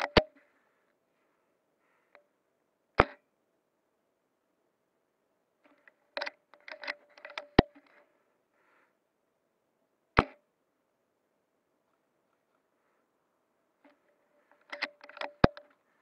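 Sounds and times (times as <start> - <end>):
rifle bolt clicking and rattling: 5.7 - 8.0, 13.9 - 15.8.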